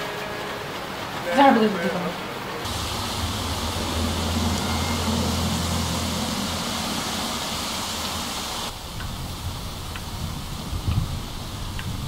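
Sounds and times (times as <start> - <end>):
rain falling on wet street: 0.0 - 12.0
low rumble: 2.7 - 11.5.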